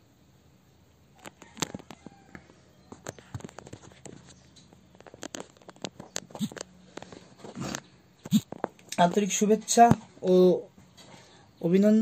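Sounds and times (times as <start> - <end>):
faint clicks and crackles: 1.2 - 9.2.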